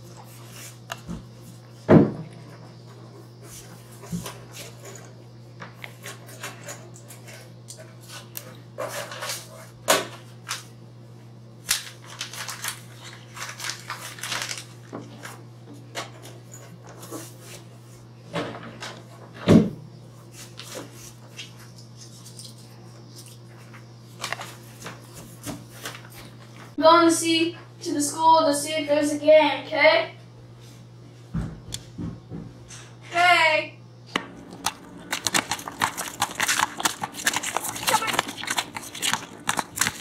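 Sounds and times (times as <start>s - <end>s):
rummaging through objects: 12.0s - 15.4s, 34.3s - 40.0s.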